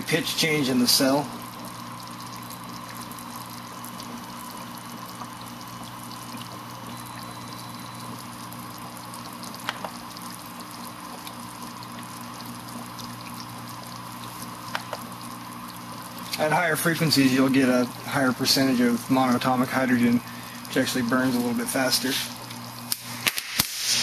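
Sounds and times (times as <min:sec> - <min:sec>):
gas bubbles fizzing: 0:00.0 - 0:24.0
steady electrical tone: 0:06.1 - 0:09.6.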